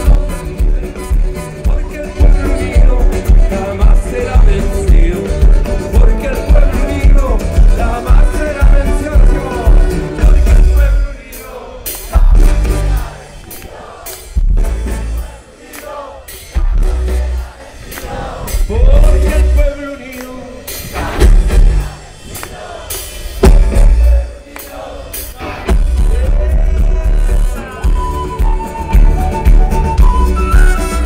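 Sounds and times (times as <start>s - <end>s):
trumpet and trombone: 0.0s - 4.8s
live band music: 0.0s - 31.0s
heavy kick drum and bass: 23.4s - 24.2s.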